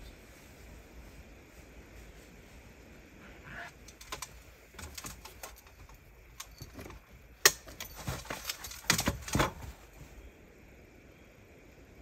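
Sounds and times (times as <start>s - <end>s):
light clinks: 3.8s - 10.0s
tent fabric rustling: 7.6s - 10.3s.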